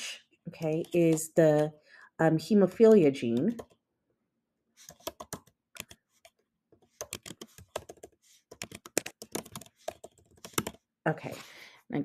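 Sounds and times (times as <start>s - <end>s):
computer keyboard typing: 0.6s - 1.7s, 3.2s - 3.8s, 4.8s - 10.9s.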